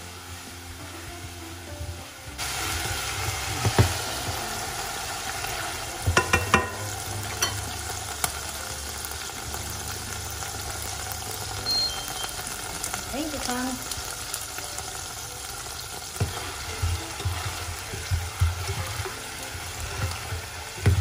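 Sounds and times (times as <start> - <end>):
chicken sizzling in a saucepan: 0.0 - 21.0
plastic paddle knocking on pan: 3.6 - 3.9, 6.1 - 6.8, 20.0 - 21.0.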